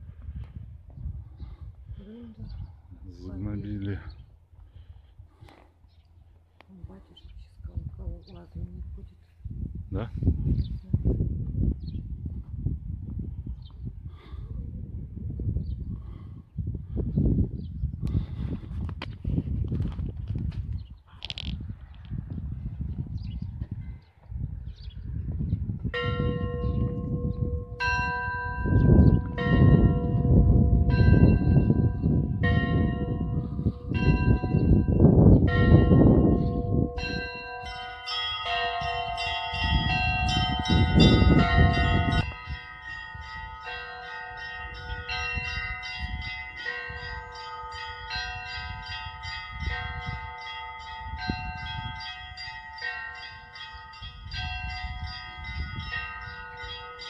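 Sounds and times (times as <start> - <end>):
church bells ringing: 25.9 - 57.0.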